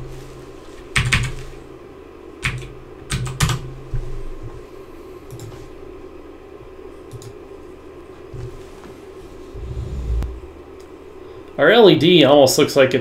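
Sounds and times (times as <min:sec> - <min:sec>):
steady low hum: 0:00.0 - 0:13.0
computer keyboard keystrokes: 0:01.0 - 0:01.4, 0:02.4 - 0:03.6, 0:05.3 - 0:05.5, 0:07.1 - 0:07.4.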